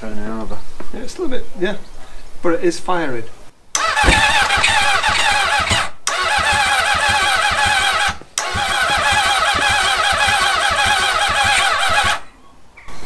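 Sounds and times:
motorcycle engine cranking on starter: 0:03.8 - 0:12.2.

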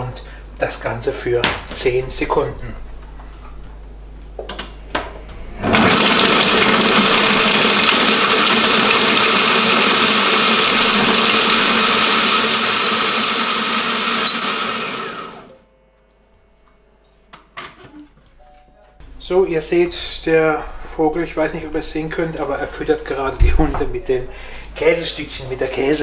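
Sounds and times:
food processor chopping cheese: 0:05.6 - 0:15.5.

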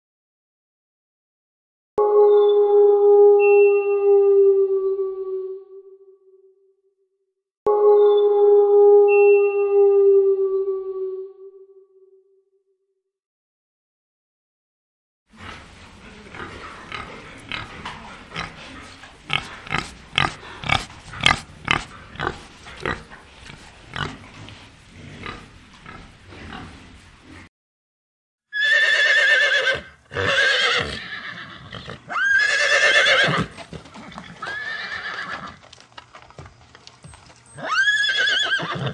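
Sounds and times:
wild boar grunting: 0:15.3 - 0:27.5
horse whinnying: 0:28.5 - 0:35.6, 0:37.5 - 0:38.9.

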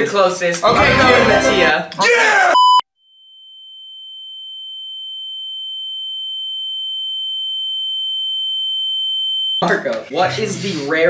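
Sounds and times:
high-pitched electronic tone: 0:00.7 - 0:01.8.

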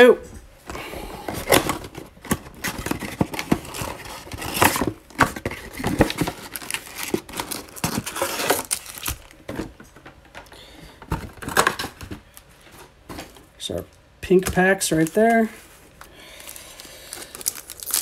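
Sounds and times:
foil packs crinkling: 0:00.8 - 0:10.0, 0:14.3 - 0:18.0
cardboard box tearing: 0:01.4 - 0:09.3.

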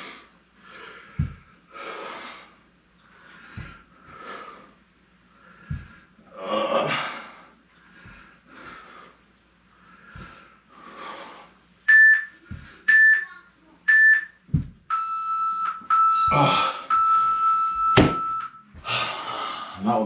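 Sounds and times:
soft thuds: 0:01.1 - 0:01.5, 0:05.6 - 0:06.0, 0:14.4 - 0:14.9
timer beeps: 0:11.9 - 0:18.7.

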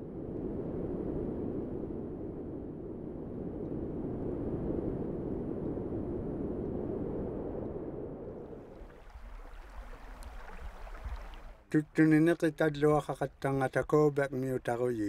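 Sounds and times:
low rumbling noise: 0:00.0 - 0:11.8.

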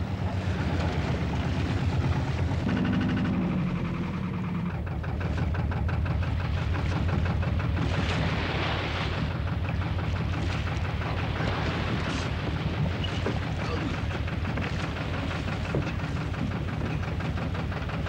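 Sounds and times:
boat engine throbbing: 0:00.0 - 0:18.0
water splashing: 0:06.4 - 0:17.5.

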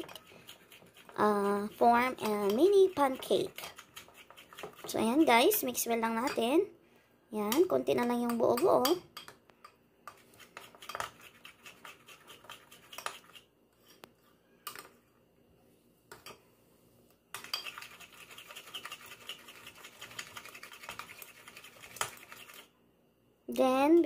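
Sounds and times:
metal spoon stirring in glass bowl: 0:00.0 - 0:06.5, 0:10.1 - 0:13.5, 0:17.3 - 0:22.7.

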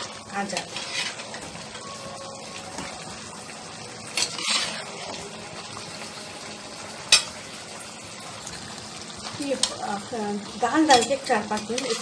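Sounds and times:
gravy simmering and sizzling: 0:00.0 - 0:12.0
scrape in pot: 0:00.6 - 0:01.3, 0:04.2 - 0:05.1.

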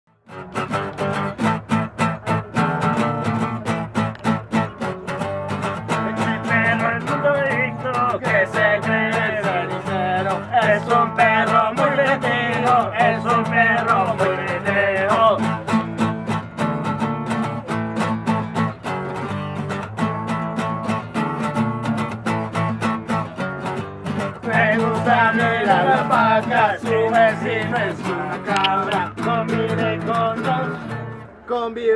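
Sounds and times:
acoustic guitar duet: 0:00.1 - 0:31.9.

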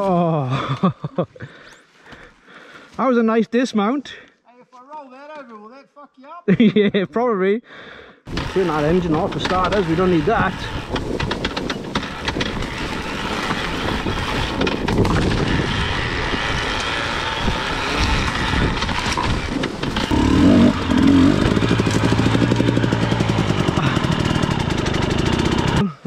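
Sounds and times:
dirt bike engine running: 0:08.3 - 0:26.0.

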